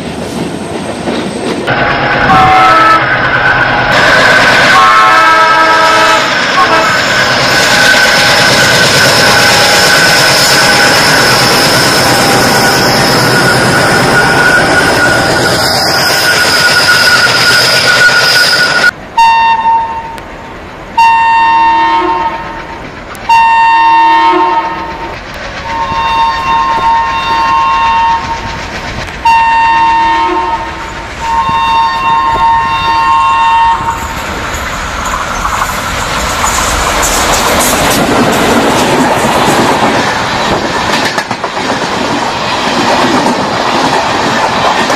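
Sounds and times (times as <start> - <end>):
train wheels rumbling: 0.0 - 44.9
locomotive horn blasts: 1.7 - 7.1, 18.4 - 20.2, 21.0 - 22.6, 23.3 - 25.0, 25.6 - 28.4, 29.2 - 34.0
wheels clacking over rail joints: 24.6 - 30.0, 33.8 - 44.9.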